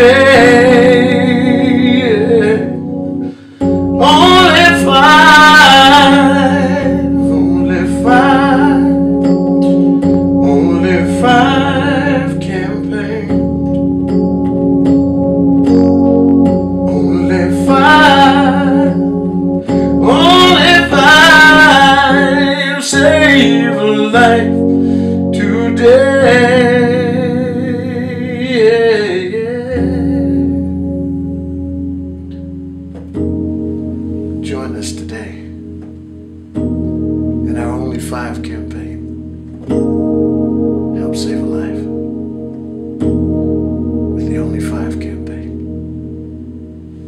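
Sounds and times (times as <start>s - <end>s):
man singing with vibrato: 0.0s - 13.7s, 16.7s - 30.8s
bass line: 0.0s - 47.0s
sustained keyboard chords: 0.0s - 47.0s.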